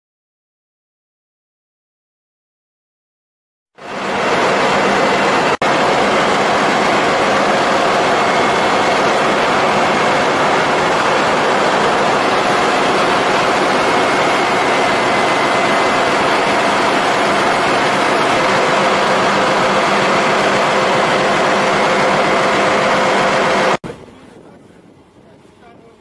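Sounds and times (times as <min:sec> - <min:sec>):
engine room machinery din: 0:03.8 - 0:24.5.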